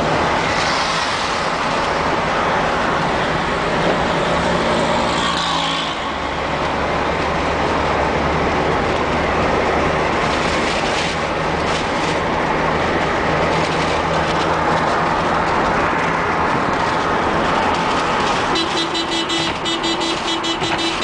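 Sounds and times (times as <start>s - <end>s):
car engine hum: 0.0s - 21.0s
tyre and wind noise: 6.0s - 21.0s.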